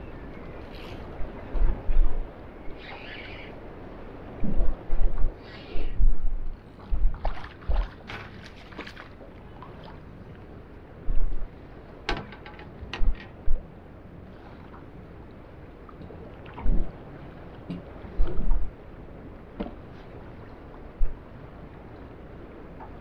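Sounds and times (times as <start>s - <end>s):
wind buffeting microphone: 0.0s - 23.0s
water slopping against boat hull: 6.9s - 10.0s, 19.6s - 19.9s.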